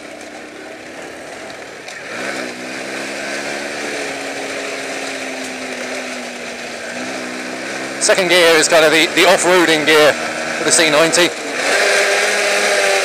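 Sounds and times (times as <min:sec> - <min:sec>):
motorcycle engine pulling: 0:00.0 - 0:13.0
steady rushing noise: 0:00.0 - 0:13.0.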